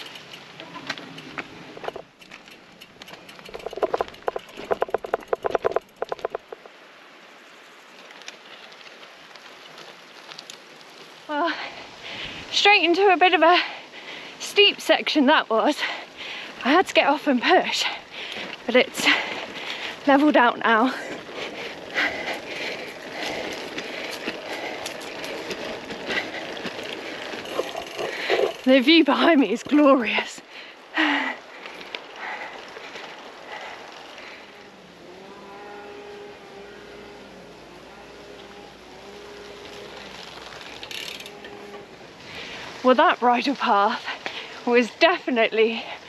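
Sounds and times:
bicycle freewheel hub clicking: 0:00.0 - 0:06.7, 0:20.9 - 0:29.9, 0:39.0 - 0:42.5
faint outdoor background: 0:00.0 - 0:46.0
tyres rustling on dirt: 0:00.0 - 0:46.0.

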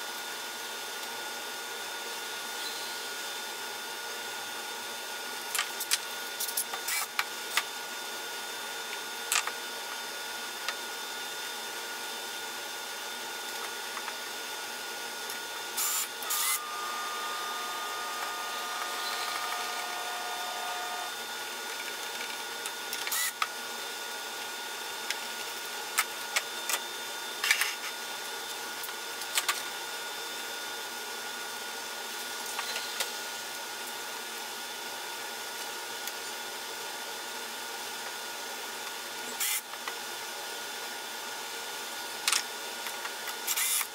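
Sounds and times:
machine hum: 0:15.1 - 0:23.4.

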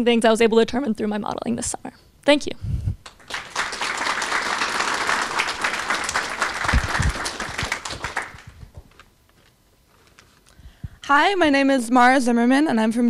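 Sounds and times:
audience applauding: 0:03.0 - 0:08.8.

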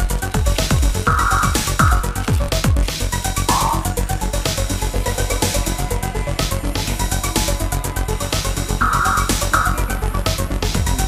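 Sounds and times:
electronic trance dance music: 0:00.3 - 0:04.3, 0:08.8 - 0:11.0.

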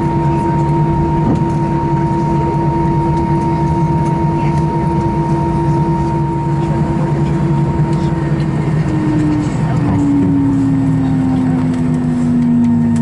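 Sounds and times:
jet engines idling drone: 0:00.0 - 0:13.0.

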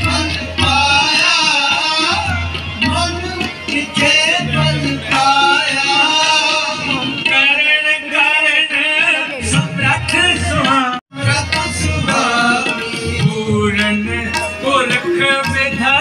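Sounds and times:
man singing: 0:00.0 - 0:16.0
tabla drumming: 0:00.0 - 0:16.0.

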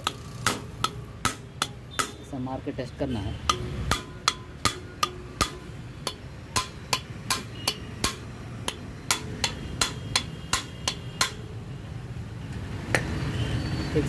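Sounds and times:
hammer tapping metal: 0:00.0 - 0:02.3, 0:03.4 - 0:11.6.

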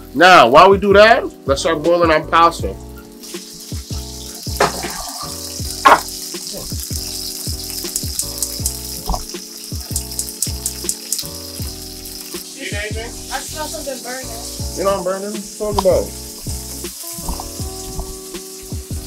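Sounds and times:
chicken frying in hot oil: 0:00.0 - 0:19.0
deep bass notes: 0:00.8 - 0:03.0, 0:12.9 - 0:18.2
hi-hat ticks: 0:07.5 - 0:11.4.

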